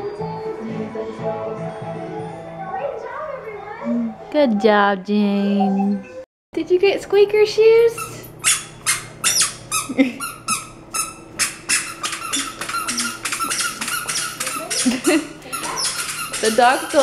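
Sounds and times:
squeaker shoes chirping: 8.0 - 17.0.

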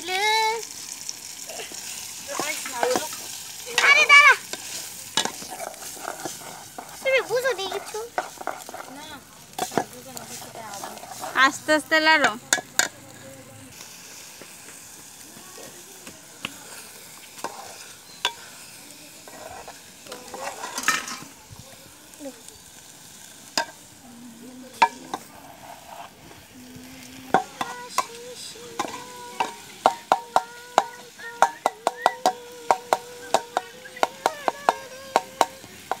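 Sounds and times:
faint sizzling: 0.0 - 36.0
metal spoon scraping metal bowl: 4.6 - 11.6, 17.4 - 18.4, 19.2 - 21.3.

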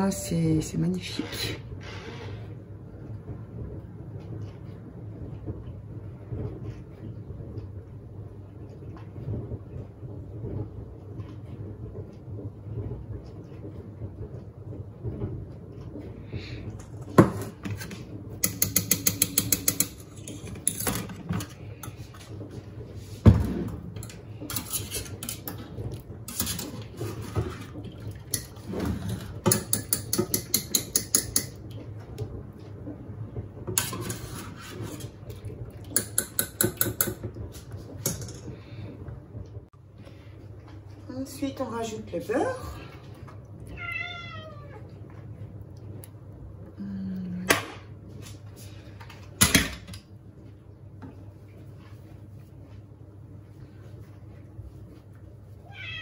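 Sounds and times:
wire skimmer scraping steel bowl: 24.0 - 27.8.

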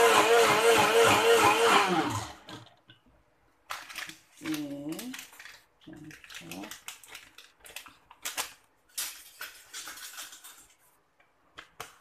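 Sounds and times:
plastic sachet crinkling: 3.6 - 11.0.

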